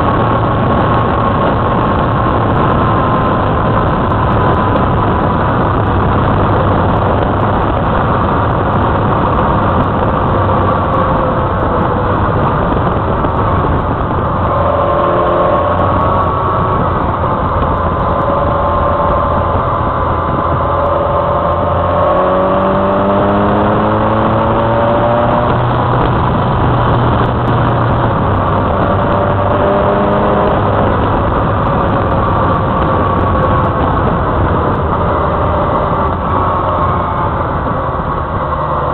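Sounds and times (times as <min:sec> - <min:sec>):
motorcycle engine revving: 0:00.0 - 0:38.9
road noise: 0:00.0 - 0:38.9
wind rush: 0:00.0 - 0:38.9.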